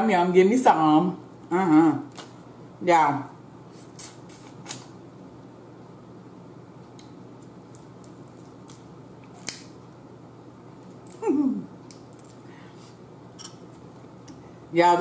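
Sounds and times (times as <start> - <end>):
steady low hum: 0.0 - 15.0
person chewing and peeling shellfish: 6.8 - 9.8, 10.8 - 14.4.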